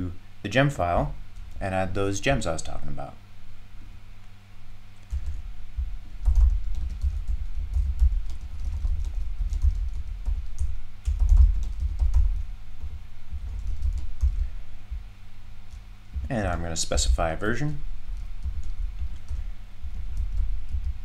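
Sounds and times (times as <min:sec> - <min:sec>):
low electrical hum: 0:00.0 - 0:21.0
typing on computer keyboard: 0:05.1 - 0:05.4, 0:06.2 - 0:12.4, 0:13.4 - 0:14.5, 0:18.2 - 0:21.0.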